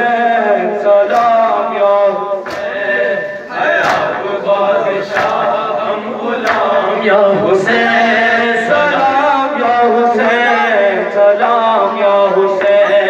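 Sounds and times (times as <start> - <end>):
men chanting a lament: 0.0 - 13.0
chest-beating slaps: 1.1 - 1.5, 2.4 - 2.8, 3.8 - 4.3, 5.0 - 5.6, 6.4 - 6.8.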